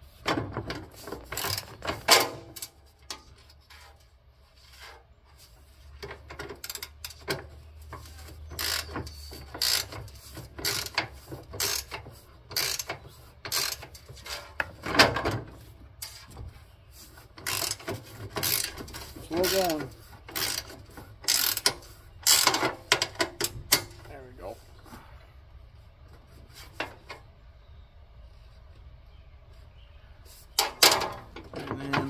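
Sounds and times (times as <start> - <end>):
ratchet wrench clicking: 6.6 - 7.3, 8.6 - 14.0, 17.4 - 22.6.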